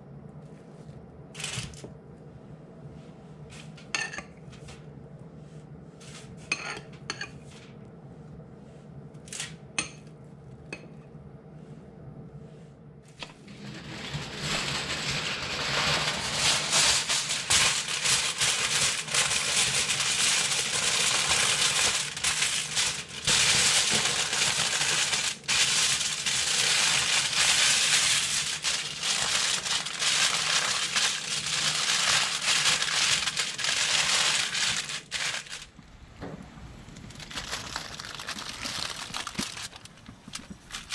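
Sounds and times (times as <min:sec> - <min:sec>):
aluminium foil crinkling: 0:01.4 - 0:01.8, 0:13.5 - 0:35.8, 0:37.0 - 0:40.9.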